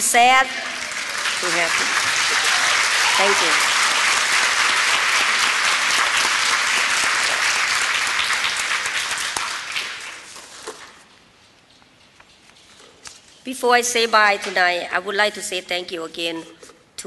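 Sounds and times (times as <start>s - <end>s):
audience applauding: 0.4s - 10.6s.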